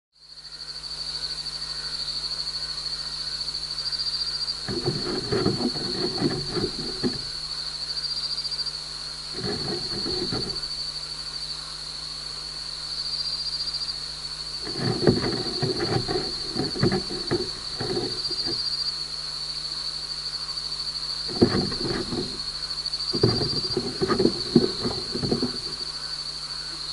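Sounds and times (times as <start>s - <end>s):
gecko feet scratching on mesh: 4.7s - 7.4s, 9.4s - 10.7s, 14.6s - 18.7s, 21.3s - 25.9s.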